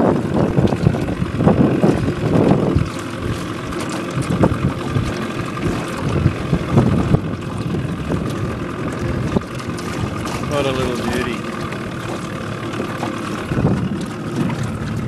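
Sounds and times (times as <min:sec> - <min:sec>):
boat motor running: 0:00.0 - 0:15.0
wind on microphone: 0:00.0 - 0:15.0.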